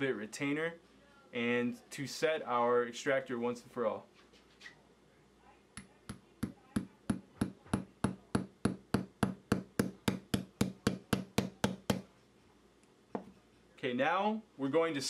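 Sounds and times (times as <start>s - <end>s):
hammer tapping metal pin: 5.8s - 12.1s.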